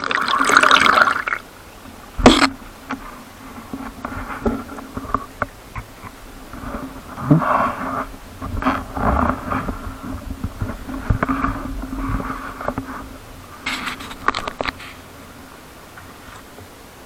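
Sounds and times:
water sloshing against hull: 0.5 - 17.0
wind buffeting microphone: 2.0 - 15.4.

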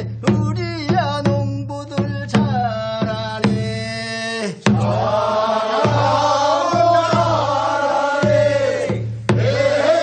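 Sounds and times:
barrel drum beats: 0.0 - 10.0
group of men singing: 4.4 - 10.0.

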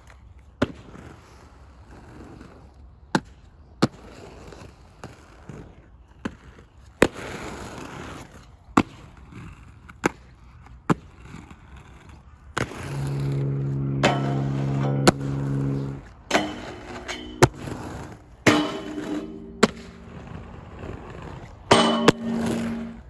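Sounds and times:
skate wheels rolling on concrete: 0.0 - 14.0, 15.0 - 23.0.

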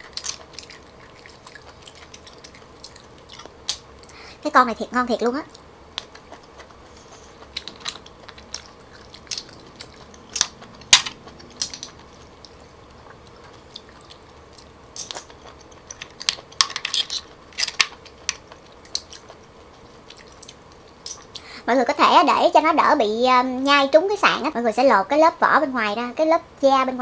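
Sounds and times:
chewing mouth sounds: 0.0 - 4.2, 5.4 - 16.6, 17.2 - 21.5
shells clicking and crunching: 7.6 - 12.1, 15.0 - 19.1.

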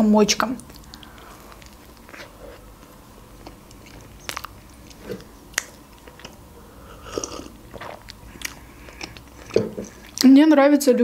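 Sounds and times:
lip smacks and clicks: 0.6 - 2.3, 3.4 - 6.4, 7.2 - 10.3
wet chewing mouth noises: 0.6 - 10.4.

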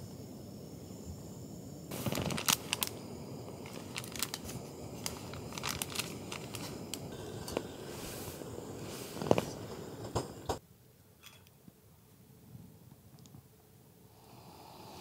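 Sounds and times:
rustling: 1.9 - 10.3.

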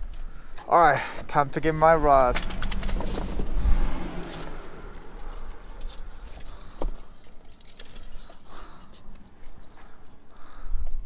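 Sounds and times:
fishing rods and reels clicking: 4.3 - 11.0.

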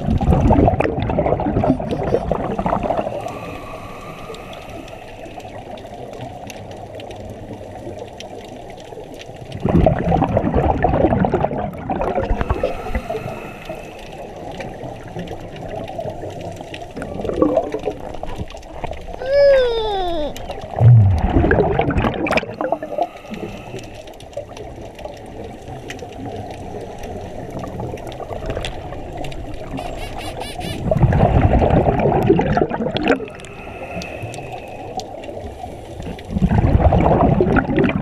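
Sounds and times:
exhaled bubbles rushing: 0.0 - 38.0
steady underwater hiss: 1.4 - 9.4, 11.9 - 17.0, 22.3 - 32.0, 33.0 - 37.6.

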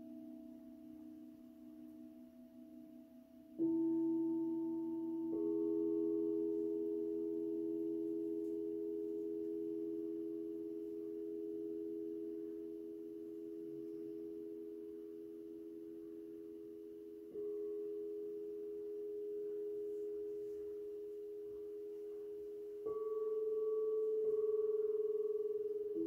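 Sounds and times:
crystal singing bowls ringing: 0.0 - 26.0.

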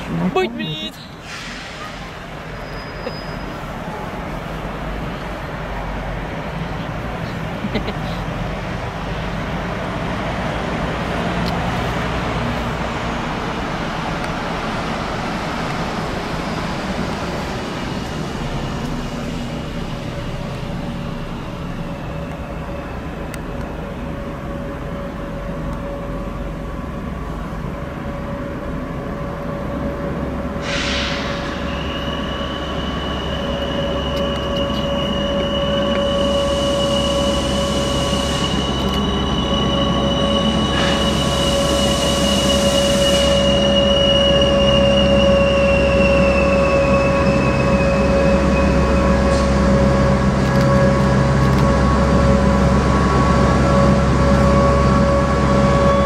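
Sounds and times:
train rumbling: 0.0 - 56.0
high steady squeal: 0.7 - 4.0, 30.6 - 56.0
short hiss: 1.2 - 2.2, 30.6 - 31.6.

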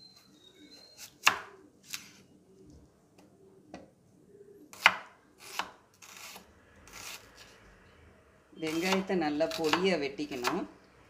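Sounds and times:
knife chopping on cutting board: 8.7 - 9.8.

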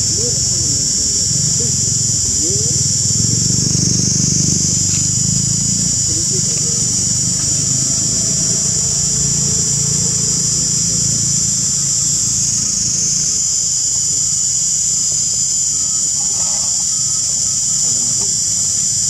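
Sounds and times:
low engine hum: 0.0 - 13.2
insect chorus drone: 0.0 - 19.0.

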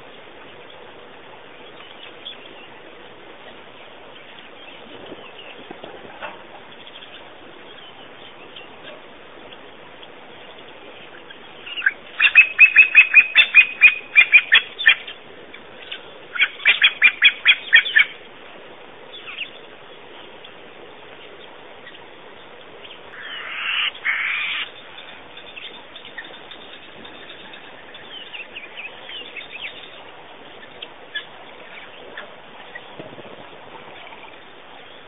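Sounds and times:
bird calling sharp notes: 11.7 - 15.0, 23.1 - 24.8.

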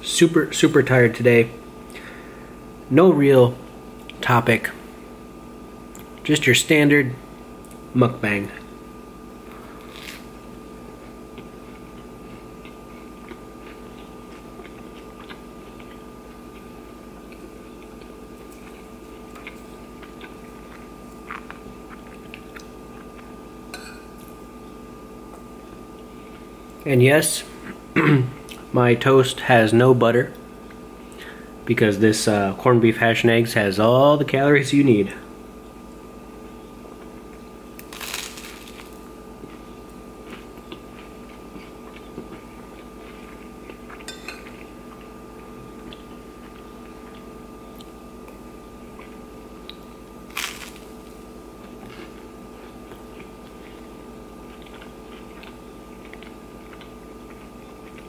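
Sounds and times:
steady low hum: 0.0 - 58.0
crunchy bite of toast: 9.4 - 23.4, 37.0 - 58.0
chewing: 11.0 - 23.4, 37.0 - 50.9, 51.6 - 58.0
metal spoon clinking on plate: 23.8 - 24.1, 44.1 - 44.5.

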